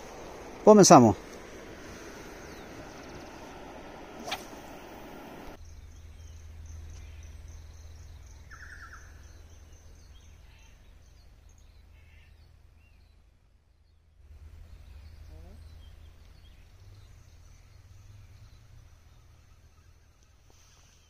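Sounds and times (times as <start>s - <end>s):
short falling sweep: 0.0s - 5.6s
steady low rumble: 0.0s - 20.2s
faint bird chirps: 0.0s - 21.0s.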